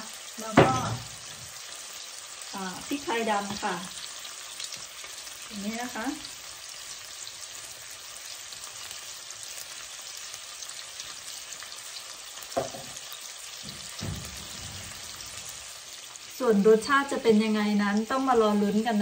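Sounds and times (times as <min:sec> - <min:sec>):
fish sizzling in a pan: 0:00.0 - 0:19.0.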